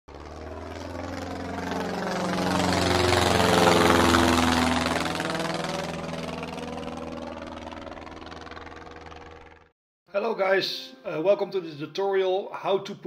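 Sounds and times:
propeller aircraft flying past: 0.1s - 9.7s.

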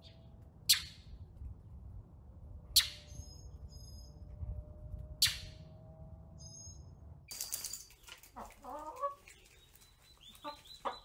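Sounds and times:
songbird harsh calls: 9.6s - 11.0s.

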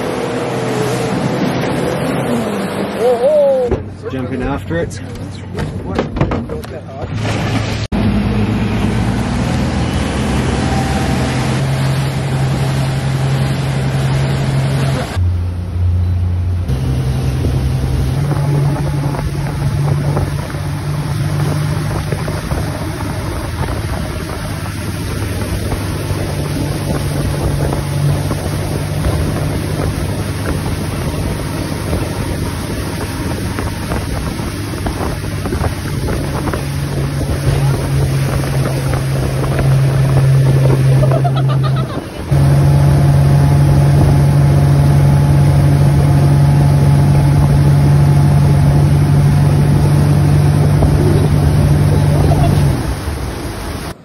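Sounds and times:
motorboat engine running: 0.0s - 54.0s
wind noise on microphone: 16.7s - 54.0s.

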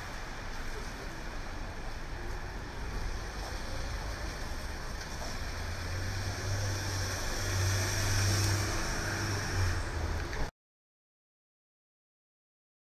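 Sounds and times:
low engine rumble: 0.0s - 10.5s
tyres hissing on wet pavement: 0.0s - 10.5s
vehicle passing close: 3.2s - 10.5s.

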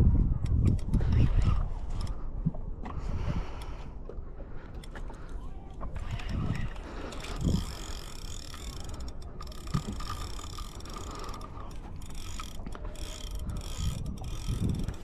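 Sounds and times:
low thumps of wind: 0.0s - 4.9s, 5.8s - 15.0s
fishing reel whirring: 0.8s - 2.2s, 4.7s - 15.0s.

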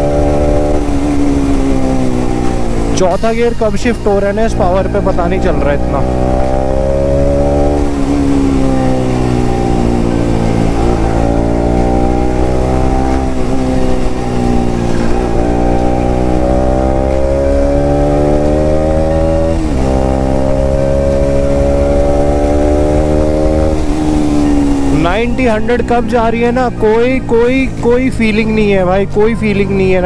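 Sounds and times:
motorcycle engine accelerating: 0.0s - 30.0s.

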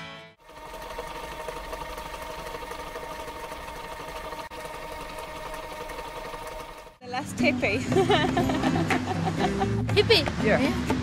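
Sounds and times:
film projector rattling: 0.4s - 7.0s
steady hum: 0.4s - 8.6s.

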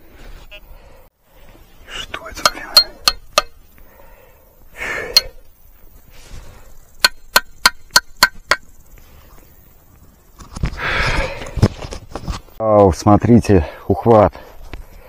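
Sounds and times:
rough scraping and rustling: 5.6s - 6.9s, 8.7s - 12.6s.

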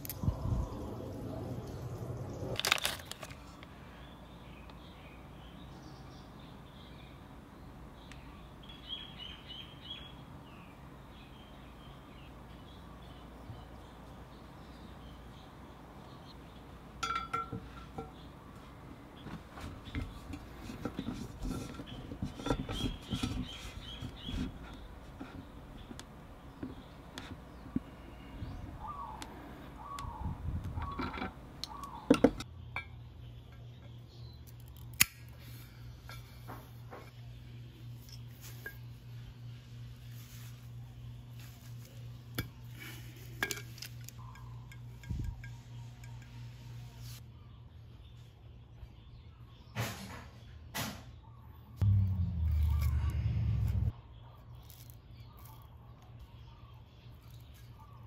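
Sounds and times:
steady low hum: 0.0s - 2.6s, 51.8s - 54.1s.

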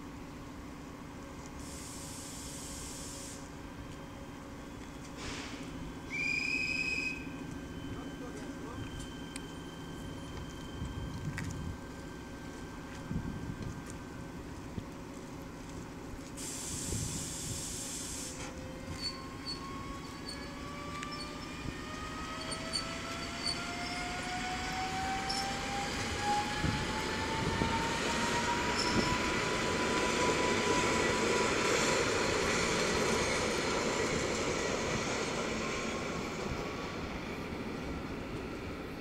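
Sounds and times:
wheel and rail rumble: 0.0s - 39.0s
electric train motors whining: 16.9s - 36.3s.

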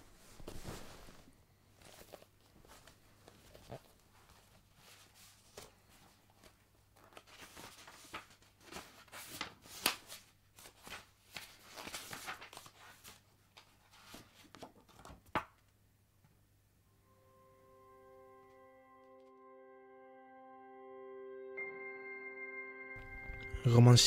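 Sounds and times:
paper rustling: 0.4s - 15.6s
low steady hum: 16.8s - 24.0s.

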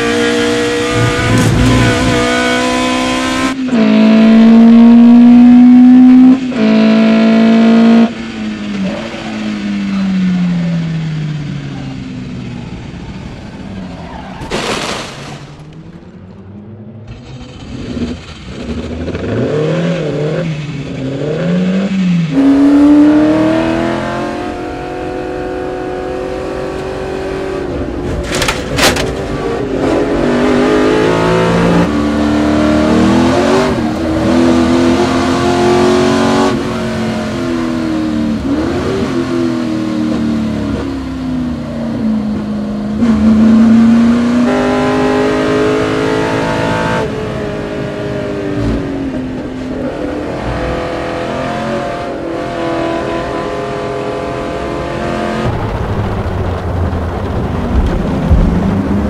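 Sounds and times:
racing car engine: 0.0s - 59.0s.

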